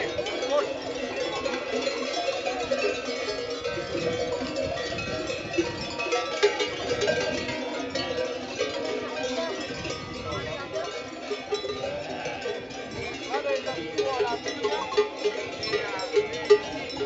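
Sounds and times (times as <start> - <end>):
sheep bells clanking: 0.0 - 17.0
sheep bleating: 11.8 - 12.8.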